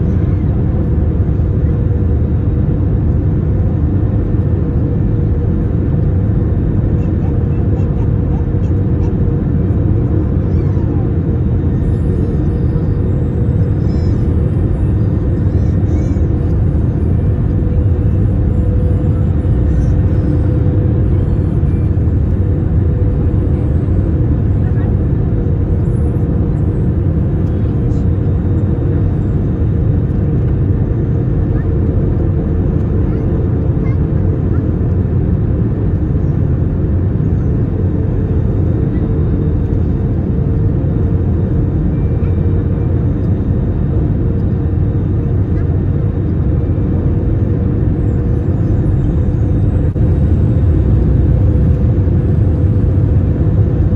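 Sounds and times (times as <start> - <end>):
aircraft cabin low rumble: 0.0 - 53.9
constant mid-pitched hum: 0.0 - 53.9.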